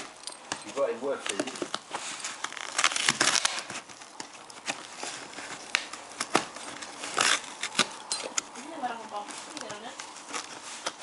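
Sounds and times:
dog ripping cardboard: 0:01.0 - 0:11.0.

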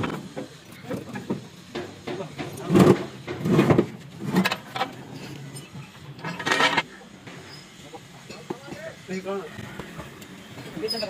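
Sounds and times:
metal scraping: 0:01.0 - 0:07.8.

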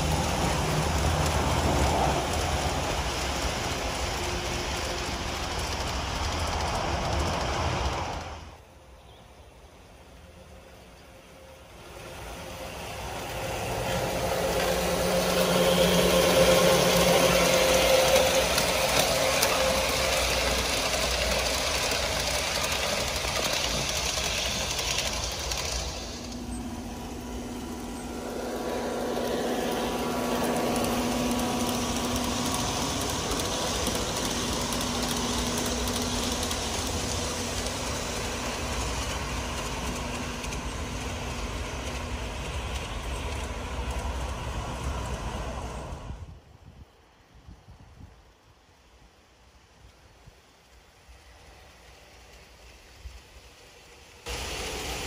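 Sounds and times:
model train running on track: 0:00.0 - 0:55.0.

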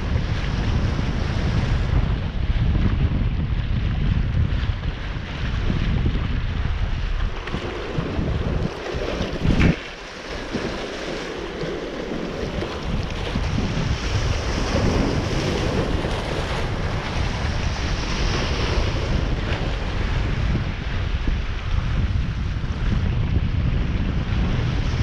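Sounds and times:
wind buffeting microphone: 0:00.0 - 0:25.0
water rushing: 0:04.5 - 0:20.2.

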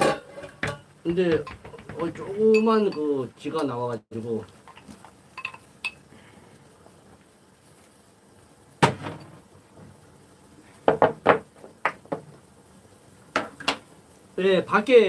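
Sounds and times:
ceramic bowl clinking: 0:00.0 - 0:03.1, 0:05.4 - 0:06.0.

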